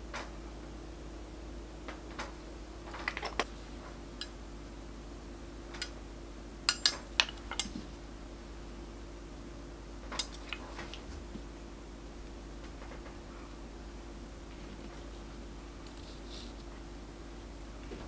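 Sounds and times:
steel tools clicking and clinking: 6.7 - 7.7.

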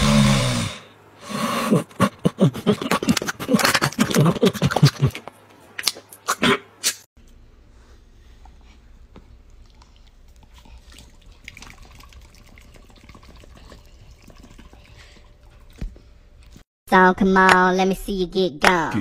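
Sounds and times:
low steady hum: 7.2 - 16.6.

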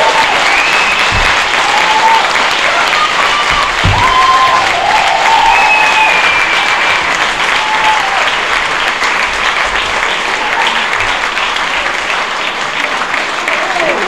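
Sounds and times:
audience applauding: 0.0 - 14.0
long whistles: 0.4 - 1.8, 5.2 - 6.8.

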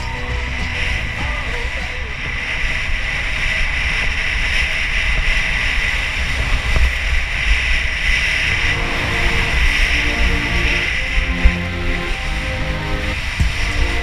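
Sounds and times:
music: 0.0 - 2.4, 8.5 - 14.0
skis scraping over snow: 0.0 - 14.0
wind buffeting microphone: 0.0 - 14.0.

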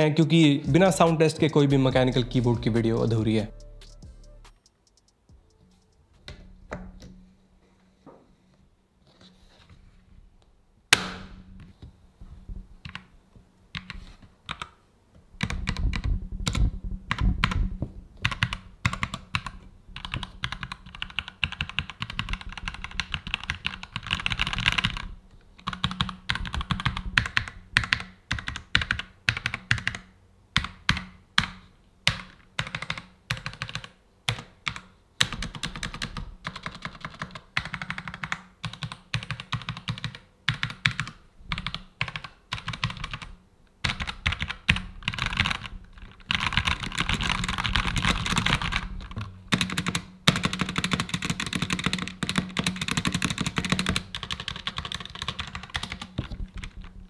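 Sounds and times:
mechanical keyboard typing: 18.2 - 56.9.

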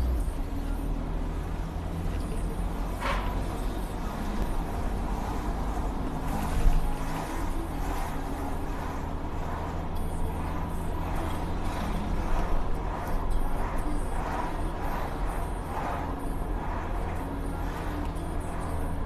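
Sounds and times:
car engine and tyres rumbling: 0.0 - 19.0.

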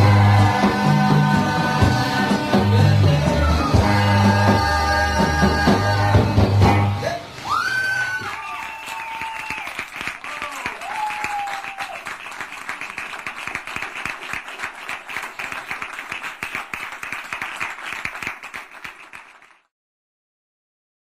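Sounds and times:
audience applauding: 7.3 - 19.7.

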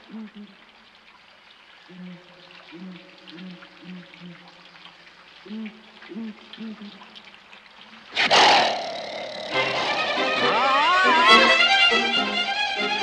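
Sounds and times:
steady rain: 0.0 - 13.0
lion roaring: 8.2 - 10.6.

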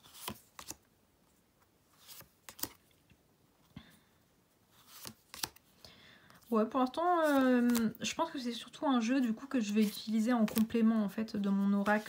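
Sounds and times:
cards sliding and flicking: 0.0 - 0.9, 1.9 - 2.9, 4.8 - 5.8, 7.2 - 8.0, 9.8 - 10.7.

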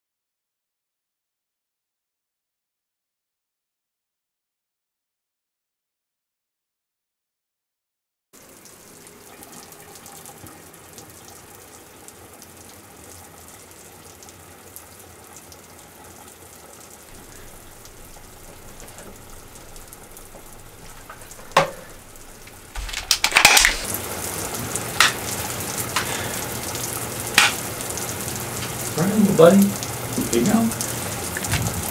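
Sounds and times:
water running: 8.4 - 31.9
knocks and clatters: 17.1 - 24.0.

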